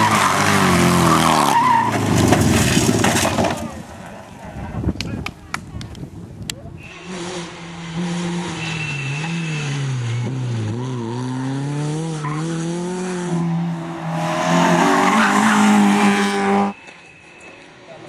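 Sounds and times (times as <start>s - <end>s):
rally car engine revving: 6.8s - 16.8s.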